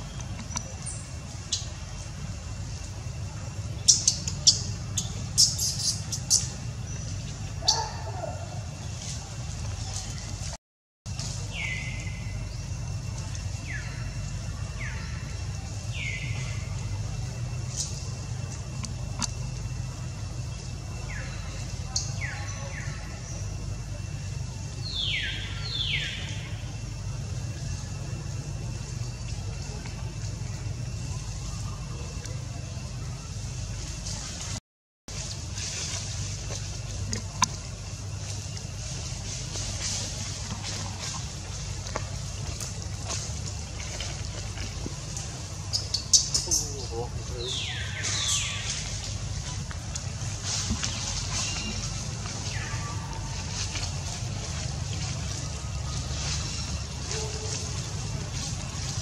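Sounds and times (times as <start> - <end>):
dry leaves crackling: 0.0 - 59.0
steady low hum: 0.0 - 59.0
monkey call: 3.8 - 6.6, 7.6 - 8.7.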